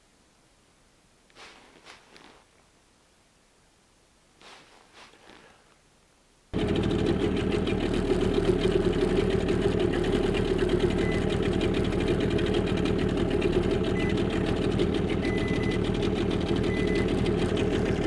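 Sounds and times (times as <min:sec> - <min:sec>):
outboard motor running: 0:06.6 - 0:18.0.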